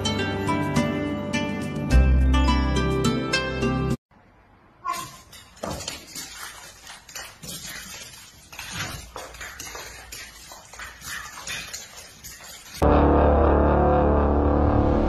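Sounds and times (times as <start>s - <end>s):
dog and cat play-fighting: 4.9s - 12.8s.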